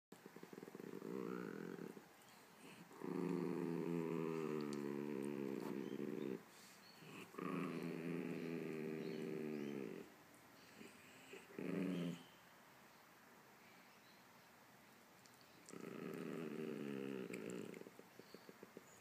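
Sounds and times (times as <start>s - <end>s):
small dog growling: 0.1s - 12.3s, 15.6s - 19.0s.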